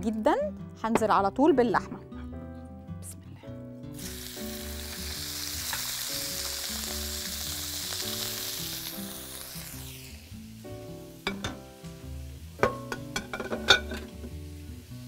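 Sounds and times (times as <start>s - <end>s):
soft background music: 0.0s - 15.0s
meat sizzling in a hot wok: 3.9s - 15.0s.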